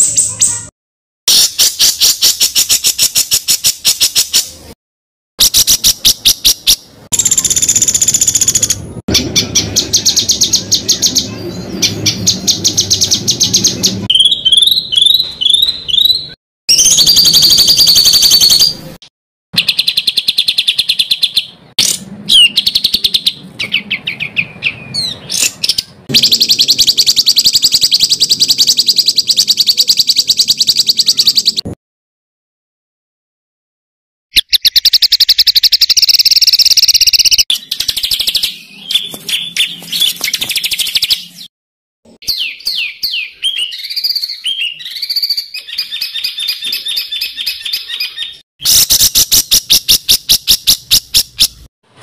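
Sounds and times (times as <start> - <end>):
rising whistled bird notes: 9.4 - 18.8, 42.2 - 51.5
songbird trilling: 19.6 - 31.6, 42.2 - 51.7.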